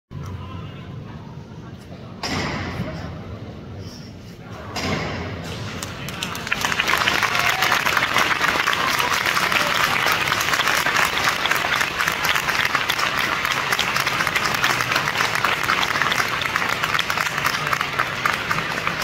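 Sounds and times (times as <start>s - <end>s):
crowd applauding: 5.8s - 19.0s.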